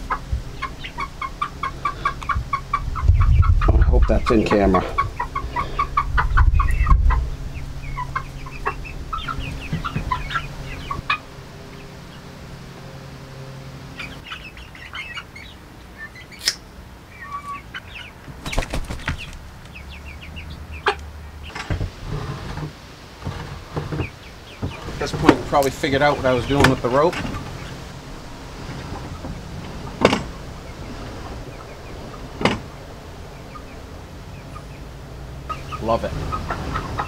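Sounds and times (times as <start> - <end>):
hens clucking: 0.0 - 12.9, 13.8 - 37.0
low rumble: 0.0 - 14.3
low steady hum: 0.0 - 37.0
wings flapping: 18.2 - 19.5.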